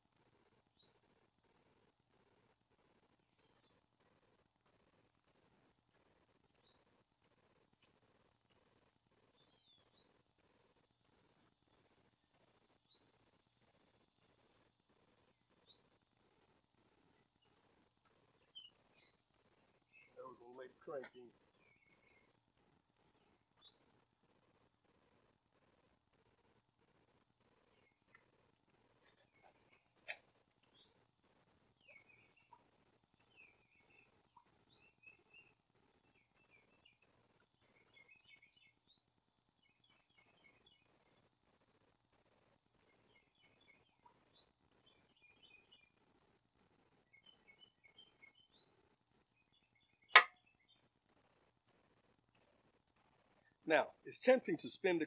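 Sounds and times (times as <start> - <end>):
faint room hiss: 0.0 - 55.0
small birds chirping: 0.0 - 55.0
high bird chirps: 17.4 - 22.3, 31.8 - 40.9.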